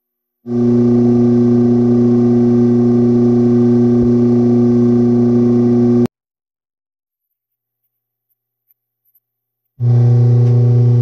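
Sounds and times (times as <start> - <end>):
steady low hum: 0.5 - 6.1, 9.8 - 11.0.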